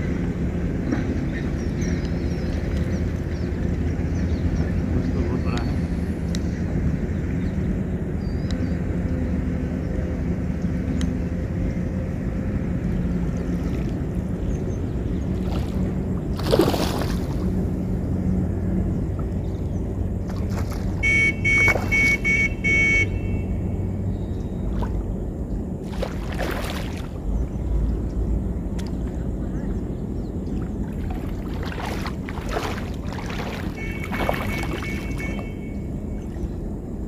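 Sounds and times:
steady low hum: 0.0 - 37.0
fish splashing in water: 15.2 - 17.7, 20.2 - 22.4, 25.8 - 27.3, 30.5 - 35.6
horn tooting: 21.0 - 23.8, 33.6 - 36.2.

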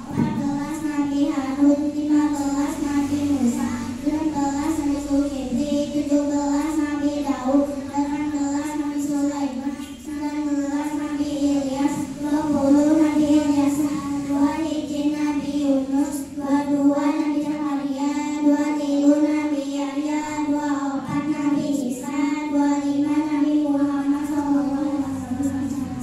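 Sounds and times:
girls singing through microphones: 0.0 - 26.0.

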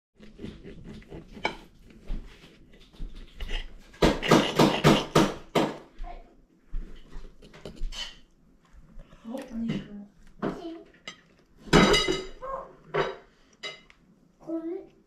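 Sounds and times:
knife and fork scraping plate: 0.2 - 1.8.

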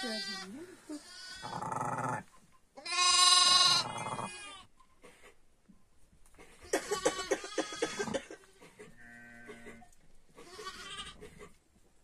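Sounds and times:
sheep bleating: 2.8 - 4.7, 9.0 - 11.2.

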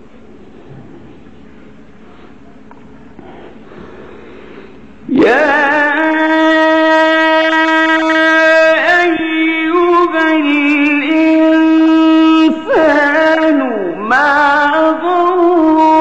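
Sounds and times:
man chanting melodically: 5.0 - 16.0.

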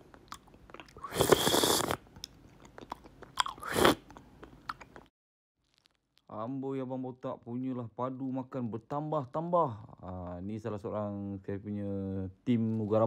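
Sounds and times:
person chewing food: 0.0 - 6.3.

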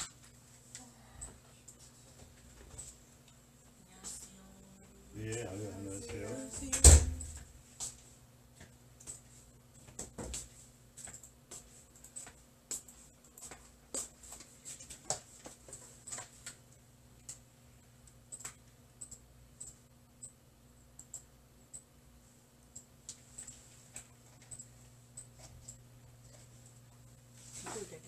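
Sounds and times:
low steady hum: 0.0 - 28.0
faint clicks and taps: 6.6 - 20.4.

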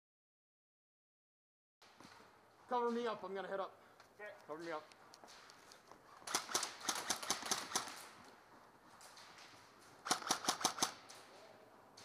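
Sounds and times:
airsoft guns firing rapid shots: 6.2 - 8.2, 10.0 - 11.3.

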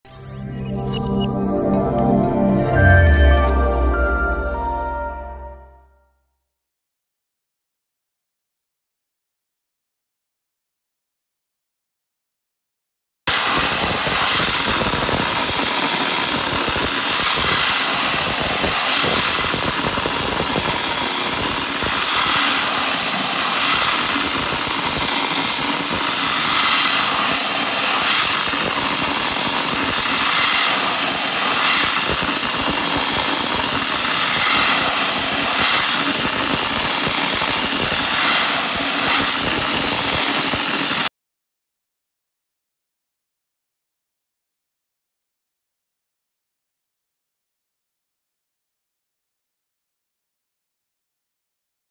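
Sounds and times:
dry ice blasting nozzle hissing: 13.3 - 41.1.

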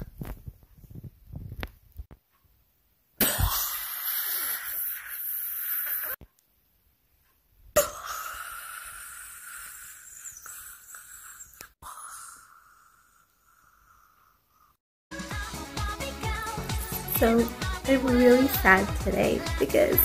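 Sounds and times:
person retching and vomiting: 3.2 - 6.2, 7.8 - 13.4.

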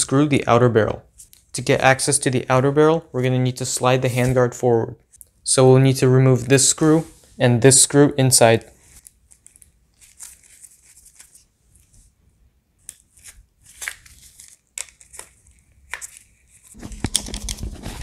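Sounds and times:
disposable gloves rustling: 8.5 - 12.2, 12.8 - 18.0.

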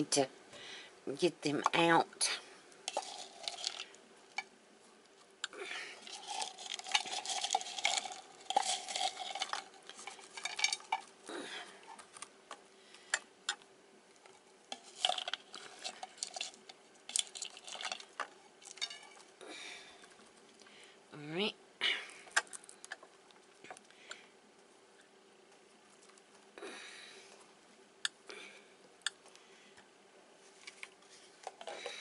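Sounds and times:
pecans clicking and rustling: 2.8 - 13.6, 14.2 - 20.8.

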